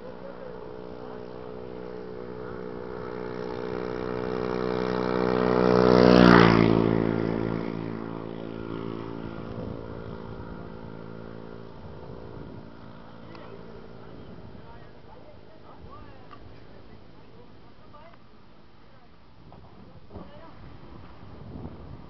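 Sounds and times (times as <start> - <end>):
vehicle passing by: 0.0 - 16.0.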